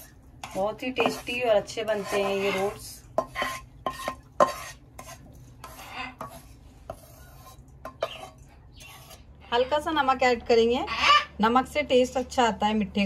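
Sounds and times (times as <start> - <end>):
spoon stirring dry mixture: 0.0 - 10.4.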